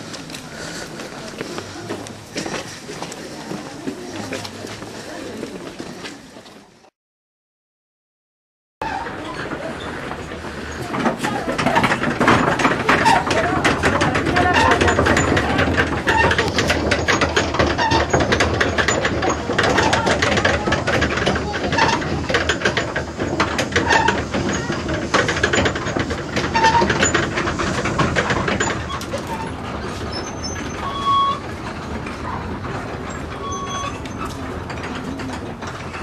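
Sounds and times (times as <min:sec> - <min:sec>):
wooden prayer wheels clattering: 0:00.0 - 0:06.5, 0:08.8 - 0:36.0.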